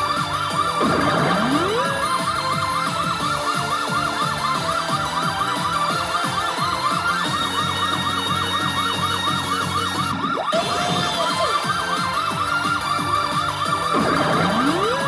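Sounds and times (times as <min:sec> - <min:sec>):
fast warbling electronic tone: 0:00.2 - 0:15.0
tone sweeping up: 0:00.8 - 0:02.9.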